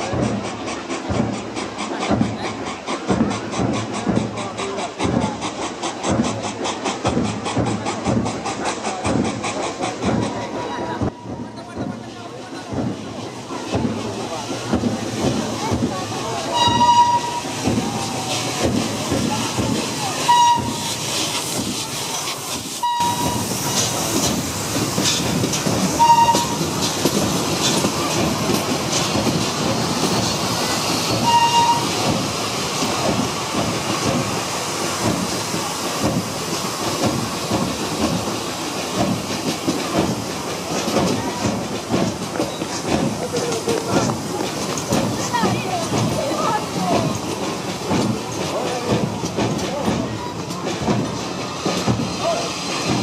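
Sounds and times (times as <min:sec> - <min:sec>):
hissing steam: 0:00.0 - 0:53.0
train wheels rumbling: 0:00.0 - 0:53.0
wheels clicking over rail joints: 0:00.0 - 0:53.0
high-pitched train toots: 0:16.4 - 0:18.4, 0:19.5 - 0:21.3, 0:22.8 - 0:24.0, 0:25.9 - 0:26.9, 0:30.1 - 0:32.3.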